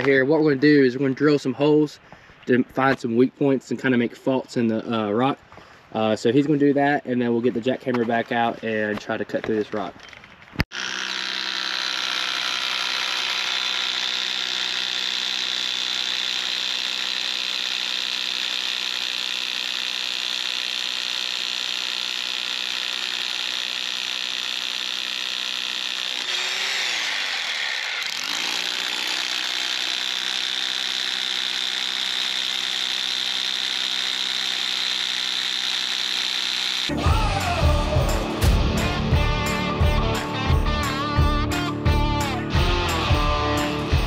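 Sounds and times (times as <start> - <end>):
power drill boring into rock: 10.0 - 39.5.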